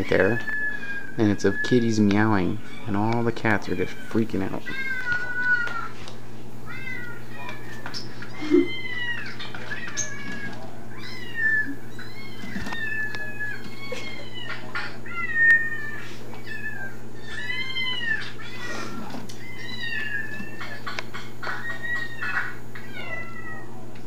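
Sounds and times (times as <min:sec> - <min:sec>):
kittens meowing: 0:00.0 - 0:06.0, 0:06.6 - 0:23.9.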